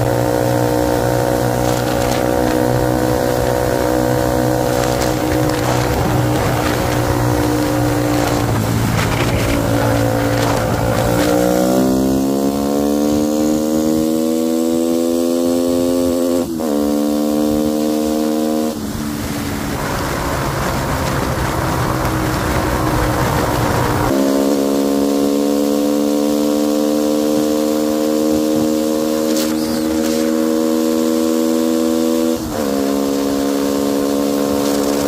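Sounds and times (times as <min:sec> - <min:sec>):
wind rush: 0:00.0 - 0:14.0, 0:18.7 - 0:24.2
motorcycle engine accelerating: 0:00.0 - 0:35.0.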